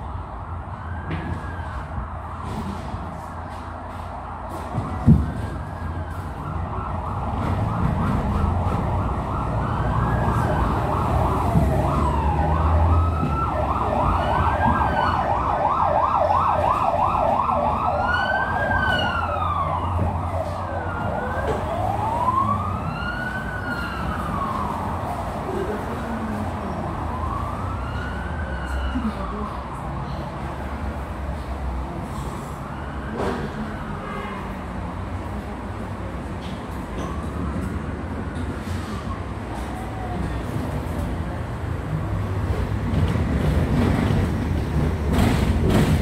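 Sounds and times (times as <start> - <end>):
emergency siren yelp and wail: 0.0 - 30.2, 32.5 - 34.1
moving tram rumble: 0.0 - 46.0.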